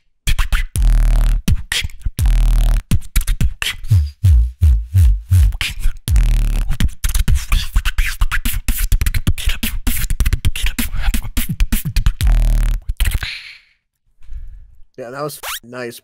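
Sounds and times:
beatboxing into a microphone: 0.2 - 13.7
deep bass booms: 3.9 - 6.5.

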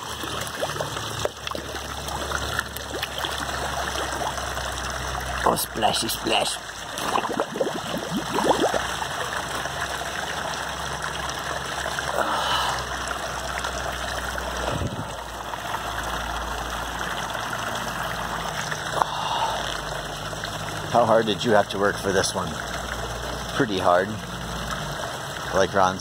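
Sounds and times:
water running and trickling: 0.0 - 26.0
steady low hum: 5.7 - 9.6.

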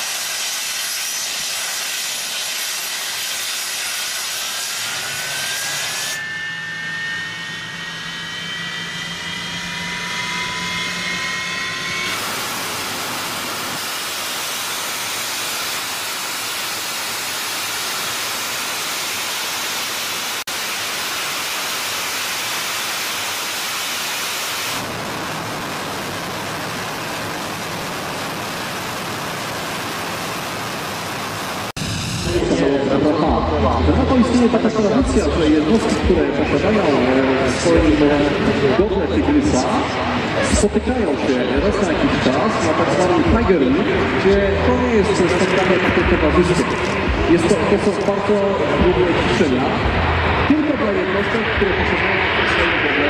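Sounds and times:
jet engine roar: 0.0 - 53.0
jet engines spooling up: 0.0 - 53.0.

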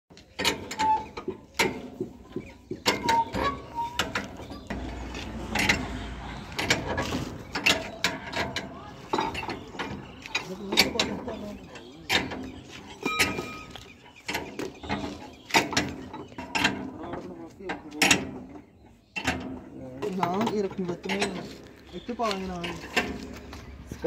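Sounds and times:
wrench clanking on metal: 0.3 - 17.0
brief squeak: 12.9 - 14.0.

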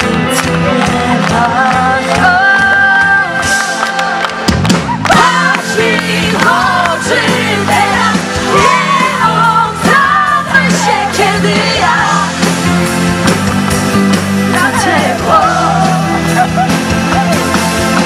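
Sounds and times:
pop band playing: 0.0 - 18.0
woman singing: 0.7 - 4.3, 14.6 - 16.1.

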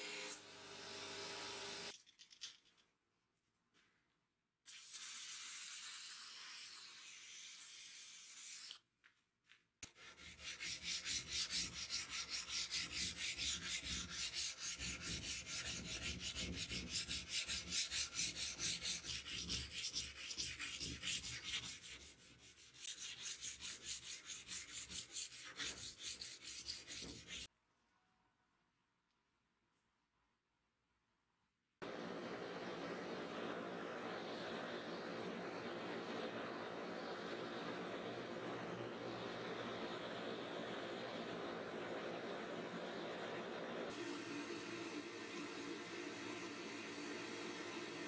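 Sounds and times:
sandpaper rubbing on steel blade: 9.8 - 27.5.

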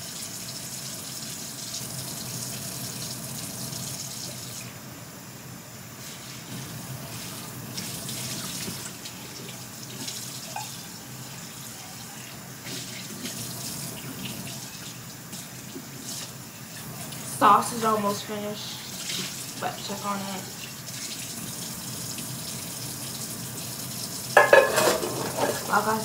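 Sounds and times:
tap running into steel sink: 24.4 - 25.8
pot and utensil clinking: 24.4 - 26.0.

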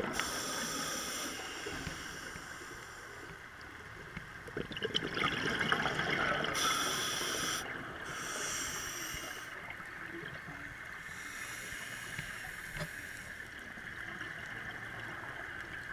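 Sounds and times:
scuba regulator breathing: 0.0 - 3.4, 6.6 - 9.6, 11.0 - 13.5
steady underwater hum: 0.0 - 15.9
underwater bubbling: 0.0 - 15.9.

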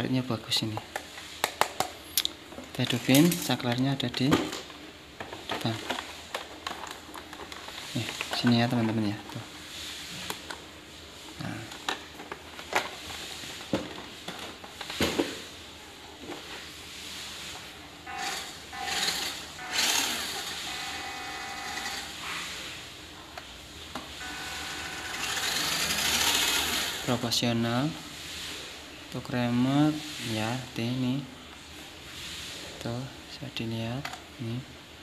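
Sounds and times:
clicks and knocks handling toy: 0.8 - 9.4
electric motor and gears whirring: 17.5 - 22.9, 23.9 - 27.4.

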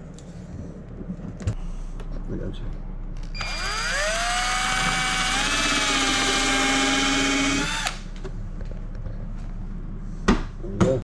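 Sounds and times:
power drill whining: 3.4 - 8.0.

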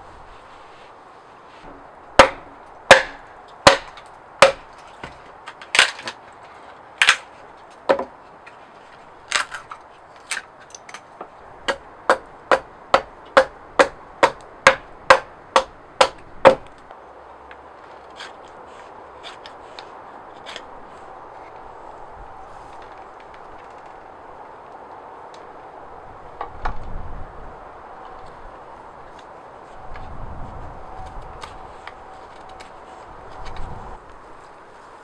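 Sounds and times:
hatchet chopping wood: 2.2 - 6.2, 7.9 - 8.1, 11.7 - 16.8.

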